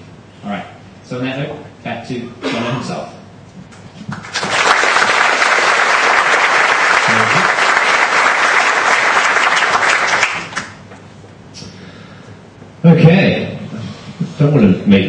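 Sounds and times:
large audience applauding: 0:04.1 - 0:10.9.

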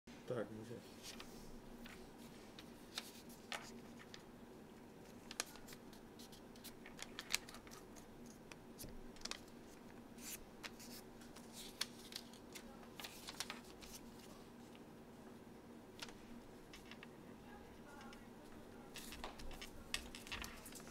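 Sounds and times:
faint low hum: 0:00.1 - 0:20.9
paper rustling and creasing: 0:00.9 - 0:04.2, 0:05.0 - 0:14.8, 0:16.0 - 0:17.1, 0:18.8 - 0:20.9.

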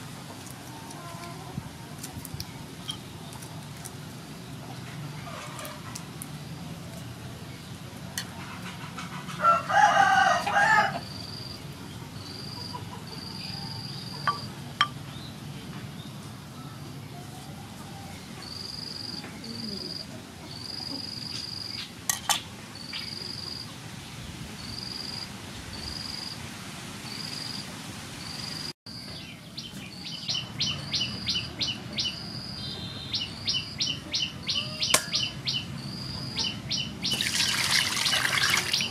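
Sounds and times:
rooster crowing: 0:09.4 - 0:11.1
high-pitched bird chirping: 0:30.2 - 0:37.4.

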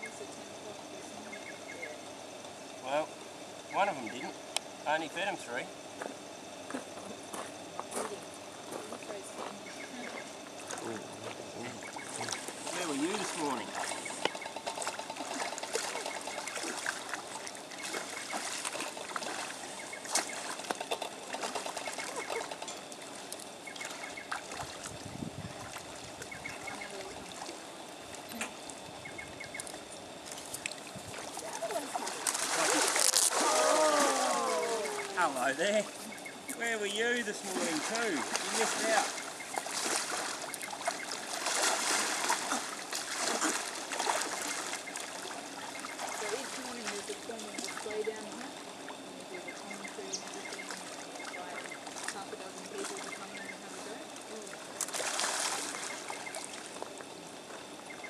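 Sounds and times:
pond water trickling and lapping: 0:00.0 - 0:58.0
person wading in water: 0:06.7 - 0:36.6, 0:37.3 - 0:57.9
small clicks and splashes: 0:12.1 - 0:24.9, 0:29.6 - 0:33.4, 0:54.1 - 0:57.1.

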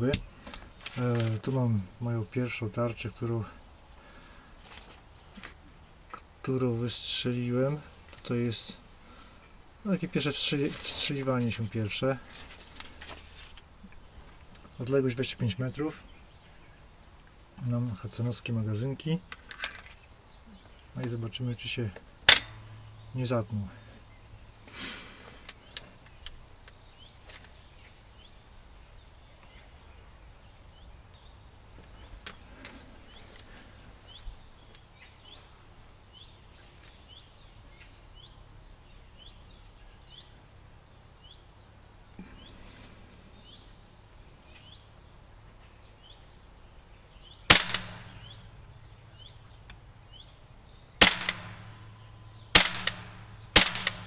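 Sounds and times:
air rifle shots: 0:22.3 - 0:22.6, 0:47.5 - 0:48.4, 0:51.0 - 0:51.9, 0:52.5 - 0:54.0.

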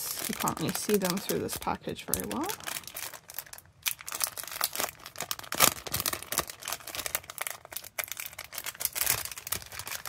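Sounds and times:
plastic packet crinkling: 0:00.0 - 0:10.0.

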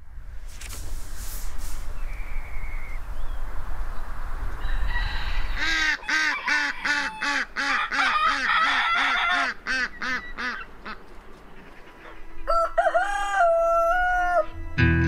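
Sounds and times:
wind rumble on microphone: 0:00.0 - 0:05.7
geese honking: 0:05.1 - 0:14.6.

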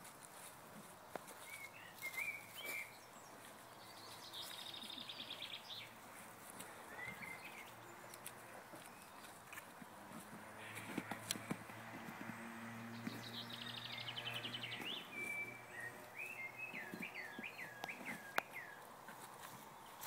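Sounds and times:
songbirds chirping: 0:00.0 - 0:20.0
bird trill: 0:13.1 - 0:18.8.

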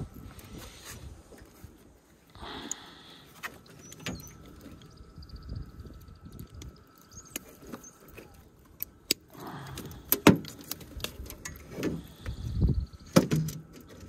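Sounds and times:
small metallic clicks and knocks: 0:06.3 - 0:12.4.

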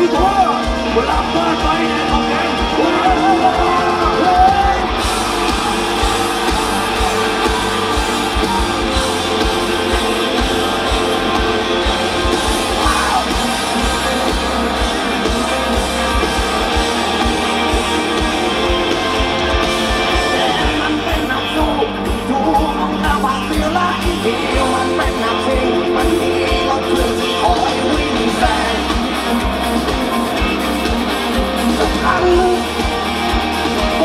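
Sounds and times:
electric guitars: 0:00.0 - 0:34.0
live rock band playing: 0:00.0 - 0:34.0
person singing: 0:09.3 - 0:29.5.

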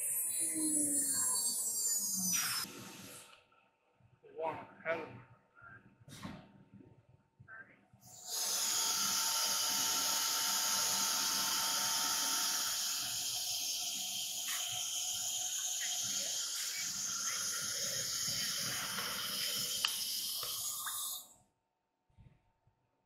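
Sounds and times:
compressed air hissing: 0:08.1 - 0:21.3.

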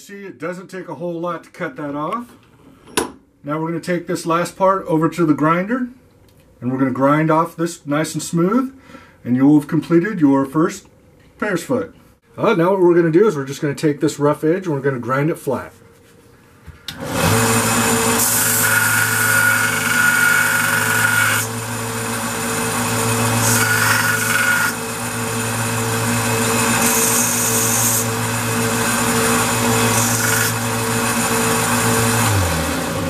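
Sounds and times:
belt grinder humming: 0:17.0 - 0:33.0
metal rod grinding hiss: 0:26.8 - 0:28.1.

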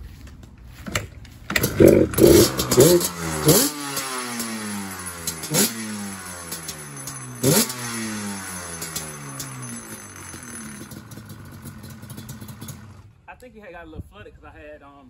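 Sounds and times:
two-stroke engine revving: 0:01.5 - 0:13.2.

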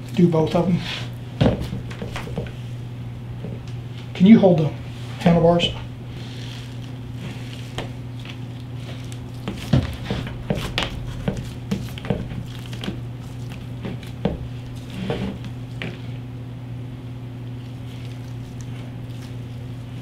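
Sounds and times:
steady low hum: 0:00.0 - 0:20.0
wet squishy handling noises: 0:06.1 - 0:16.3, 0:17.3 - 0:20.0.

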